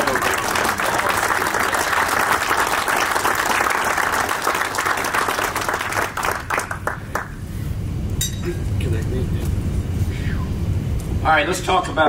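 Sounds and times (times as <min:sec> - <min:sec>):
audience applauding: 0:00.0 - 0:07.4.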